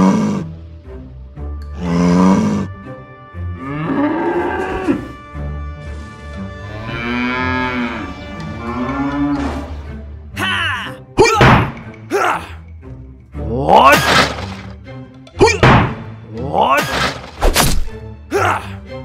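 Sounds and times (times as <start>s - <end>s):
cow mooing: 3.5s - 5.2s, 6.6s - 9.8s.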